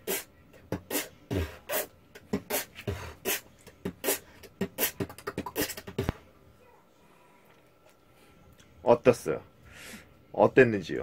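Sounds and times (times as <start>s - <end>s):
beatboxing bass-drum thumps: 0.0s - 6.2s
beatboxing hissing drum hits: 0.0s - 6.2s.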